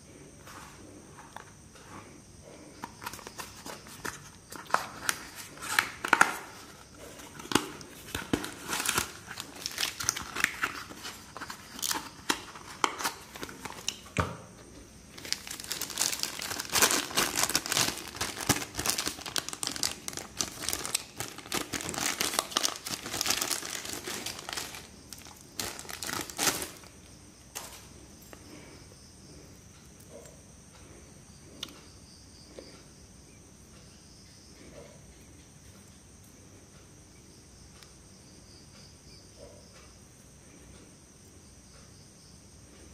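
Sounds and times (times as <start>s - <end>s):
plastic bag crinkling: 3.0s - 14.1s, 15.1s - 27.9s.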